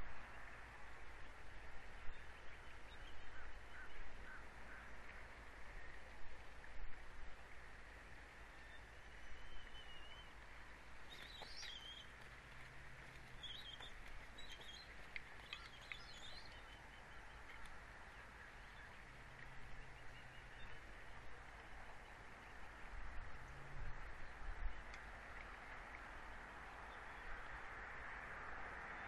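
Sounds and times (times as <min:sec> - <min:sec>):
birds chirping: 0:11.0 - 0:20.9
faint ticks: 0:11.1 - 0:19.6, 0:24.8 - 0:26.5.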